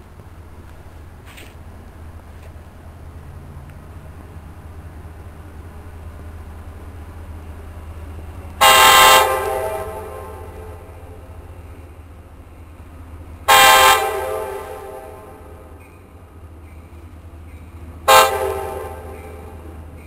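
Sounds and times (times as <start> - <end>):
steady low rumble: 0.0 - 20.0
train air horn blasts: 8.6 - 11.2, 13.5 - 15.8, 18.0 - 19.7.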